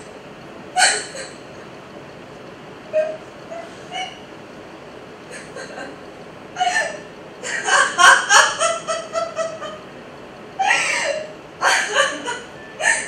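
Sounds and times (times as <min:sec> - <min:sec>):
woman laughing: 0:05.3 - 0:06.0, 0:06.6 - 0:09.8, 0:10.6 - 0:13.0.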